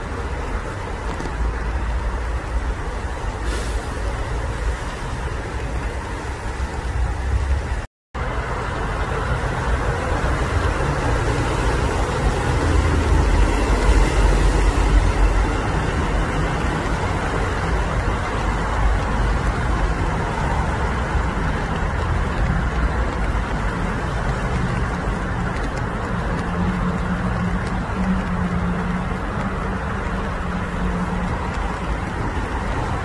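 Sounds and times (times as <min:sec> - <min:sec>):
broad hiss: 0:03.3 - 0:04.6.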